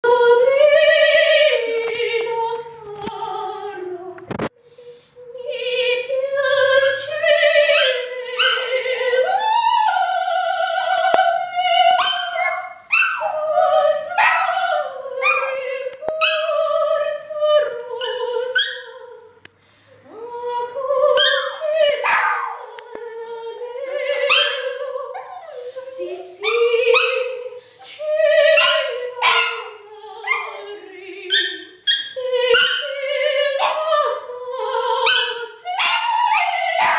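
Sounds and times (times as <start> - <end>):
woman singing opera: 0.0 - 36.9
dog howling: 7.0 - 10.1, 11.8 - 16.8, 21.0 - 22.7, 23.9 - 36.9.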